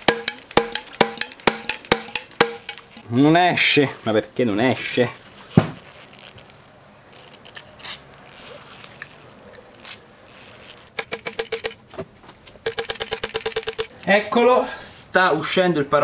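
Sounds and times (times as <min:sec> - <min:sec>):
ringing metallic clacks: 0:00.0 - 0:03.0, 0:11.0 - 0:11.8, 0:12.6 - 0:13.9.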